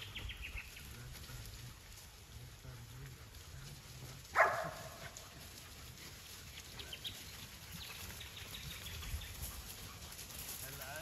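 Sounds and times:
dog barking: 4.3s - 5.3s.

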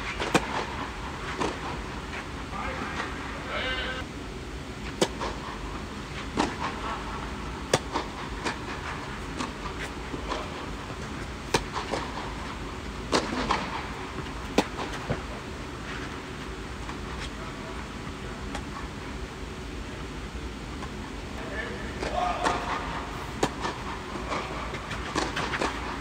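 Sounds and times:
rackets striking tennis ball: 0.1s - 1.9s, 4.9s - 5.6s, 6.3s - 7.0s, 7.6s - 12.4s, 13.0s - 15.4s, 22.0s - 26.0s
tennis ball bouncing: 0.2s - 0.7s, 7.7s - 8.6s, 13.1s - 15.2s, 23.4s - 25.9s.

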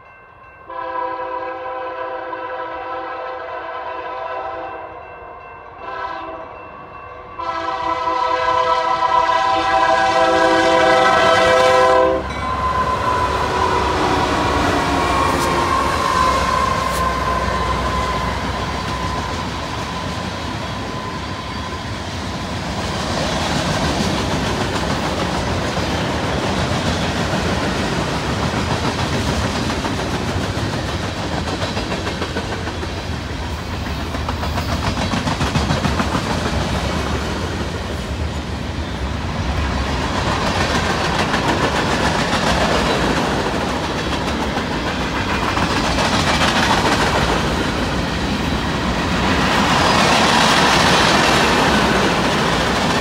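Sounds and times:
locomotive horn blasts: 0.7s - 5.0s, 5.8s - 6.6s, 7.4s - 19.5s
freight train wheels clacking: 9.0s - 38.6s, 39.4s - 53.0s
locomotives rumbling past: 9.8s - 53.0s.

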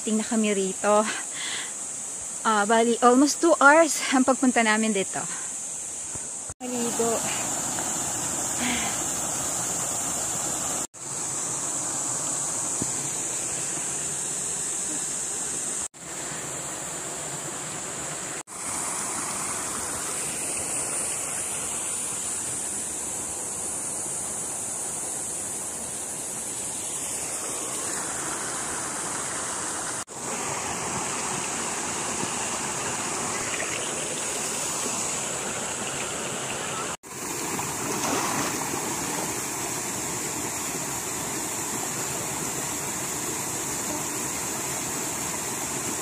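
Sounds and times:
steady high hiss: 0.0s - 46.0s
waterfall splashing into pool: 27.3s - 46.0s.

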